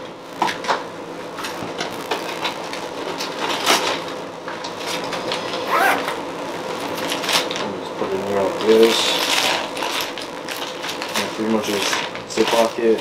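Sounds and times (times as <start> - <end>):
plastic bag crinkling: 8.6 - 12.8.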